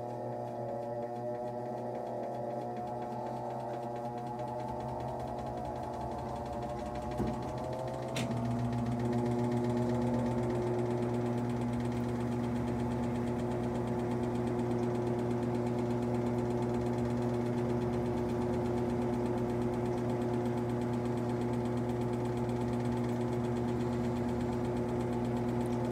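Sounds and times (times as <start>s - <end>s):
washing machine spinning: 0.0s - 25.9s
washing machine click: 4.5s - 10.9s.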